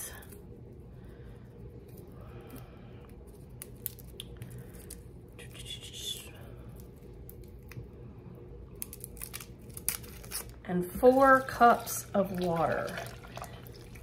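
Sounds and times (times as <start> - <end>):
foil wrapper crinkling: 8.8 - 14.0
foil rustle: 8.9 - 13.2.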